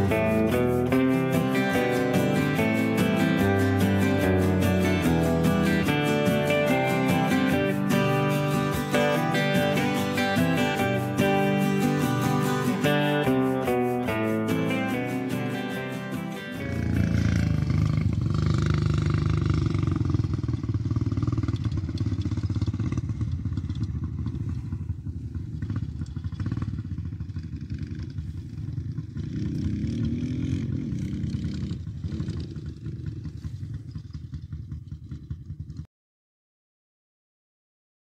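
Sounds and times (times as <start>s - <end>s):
dirt bike engines running: 0.0s - 35.9s
dirt bike engine revving: 16.3s - 33.6s.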